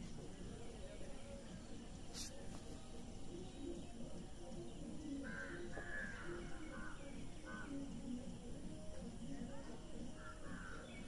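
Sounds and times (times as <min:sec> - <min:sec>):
faint outdoor background noise: 0:00.0 - 0:11.0
bird harsh calls: 0:05.2 - 0:07.8, 0:10.1 - 0:11.0.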